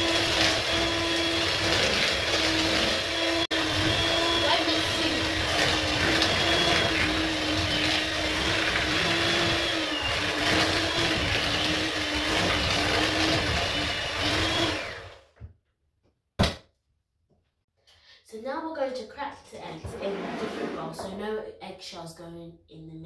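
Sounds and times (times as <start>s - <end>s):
electric hand mixer whirring: 0.0s - 15.3s.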